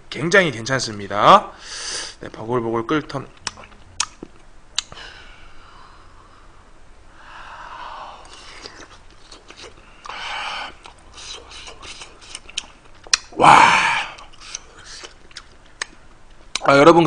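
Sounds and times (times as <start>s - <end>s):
sharp huffs of breath: 1.6s - 2.2s, 4.9s - 8.6s
wet chewing and mouth clicks: 3.4s - 5.0s, 8.2s - 13.4s, 14.0s - 16.8s.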